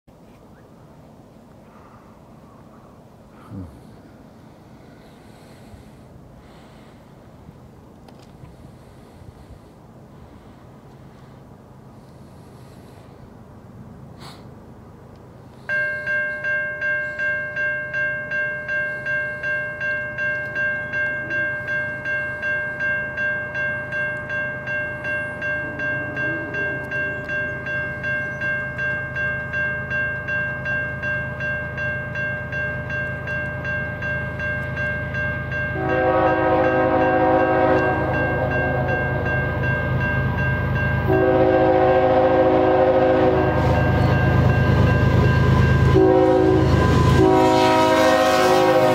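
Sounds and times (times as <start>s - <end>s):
crossing bell clanging: 15.6s - 48.9s
locomotive air horn blasts: 35.7s - 39.3s, 41.0s - 44.0s, 45.8s - 48.9s.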